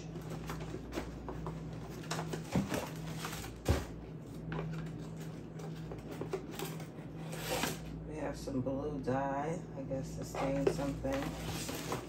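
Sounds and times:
cardboard and plastic bags rustling: 0.0s - 7.9s, 10.3s - 12.0s
steady low hum: 0.0s - 12.0s.

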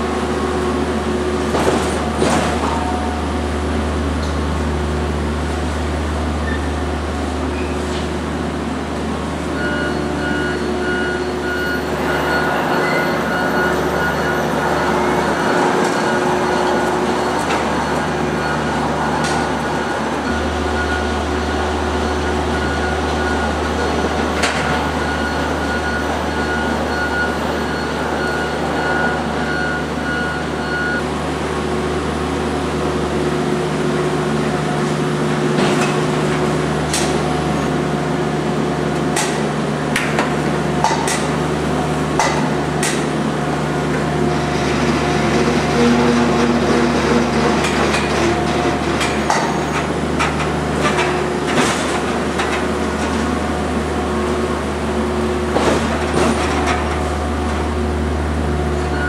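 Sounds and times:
steady machine hum: 0.0s - 59.0s
crates clacking and knocking: 1.5s - 2.8s.

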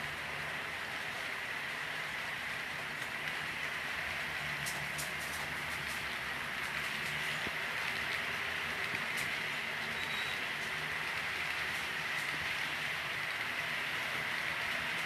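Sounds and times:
model train rolling rattle: 0.0s - 15.0s
wheels clicking over rail joints: 0.0s - 15.0s.

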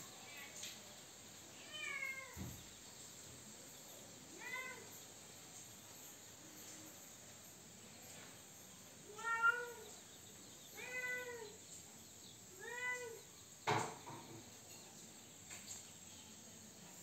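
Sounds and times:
cat meowing: 1.6s - 2.4s, 9.1s - 9.8s, 10.8s - 11.6s.

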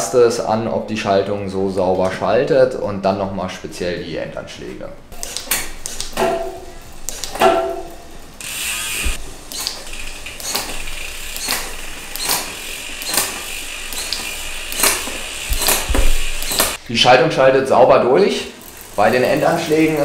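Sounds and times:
bicycle chain whir: 8.0s - 16.8s, 18.6s - 20.0s.

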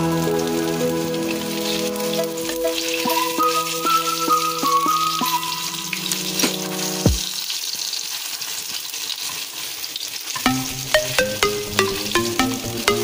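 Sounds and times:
fish sizzling in hot oil: 0.0s - 10.7s
background music with steady beat: 2.2s - 7.3s, 10.4s - 13.0s.

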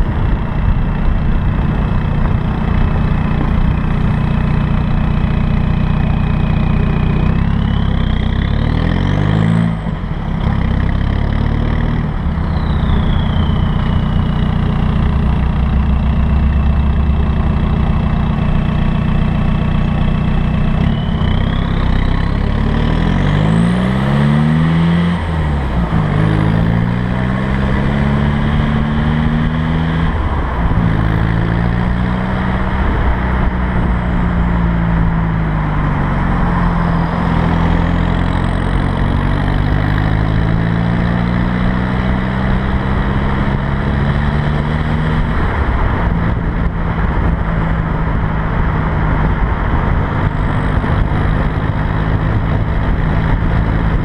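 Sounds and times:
diesel car engine accelerating: 0.0s - 54.0s
turbo whistle: 12.4s - 14.6s, 20.7s - 22.4s.

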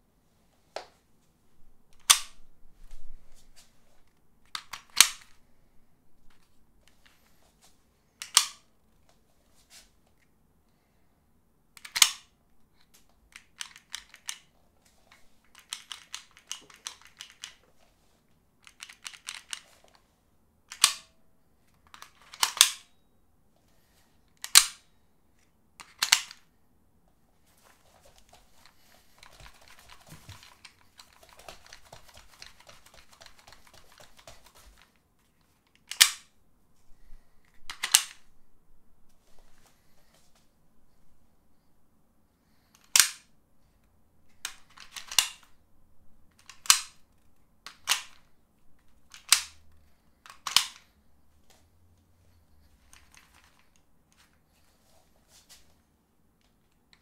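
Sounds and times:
plastic holster clicks: 2.0s - 2.4s, 4.5s - 5.4s, 8.2s - 8.6s, 11.8s - 12.3s, 20.7s - 21.1s, 35.8s - 36.3s, 42.8s - 43.3s, 46.4s - 47.0s, 49.1s - 49.6s, 50.3s - 50.9s
soft rustling: 2.5s - 4.3s, 8.9s - 10.3s, 27.1s - 35.7s, 39.1s - 41.7s, 51.0s - 56.7s.

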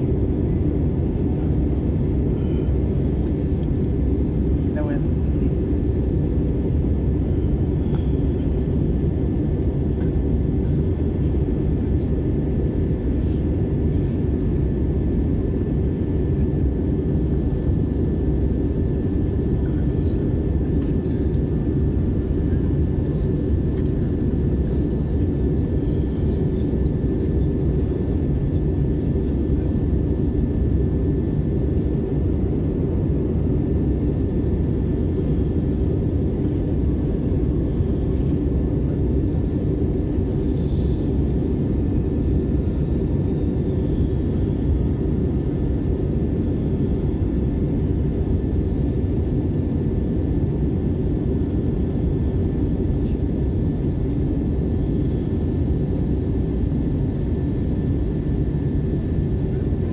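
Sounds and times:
airliner cabin engine rumble: 0.0s - 59.9s
faint steady whine: 0.0s - 59.9s.

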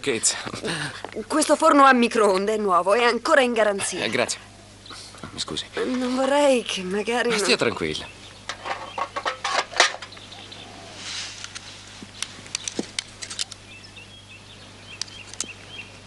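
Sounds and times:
brief scrape: 11.0s - 11.8s.

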